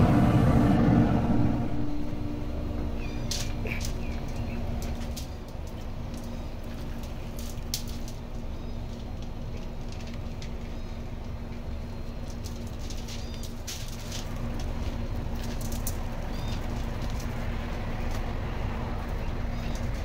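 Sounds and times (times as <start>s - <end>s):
steady low hum: 0.0s - 20.0s
bird chirping: 1.2s - 5.4s
aluminium foil crinkling: 3.2s - 18.3s.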